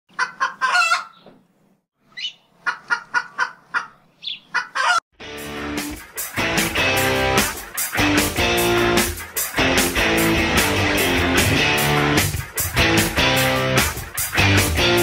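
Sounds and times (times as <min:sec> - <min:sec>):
chicken squawks: 0:00.1 - 0:01.2, 0:02.1 - 0:05.0
chicken clucking: 0:00.1 - 0:01.4, 0:02.2 - 0:05.0
guitar music with heavy beat: 0:05.2 - 0:15.0.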